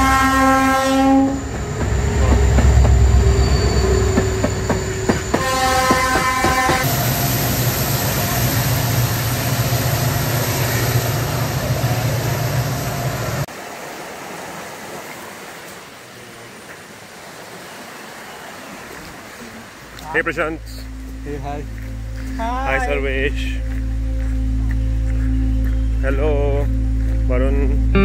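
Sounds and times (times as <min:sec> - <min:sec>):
train horn: 0:00.0 - 0:12.3
high whine: 0:00.0 - 0:13.5, 0:20.1 - 0:28.0
train rumbling past: 0:00.0 - 0:16.8
train wheels clicking: 0:01.5 - 0:11.2
small waterfall rushing: 0:13.4 - 0:20.6.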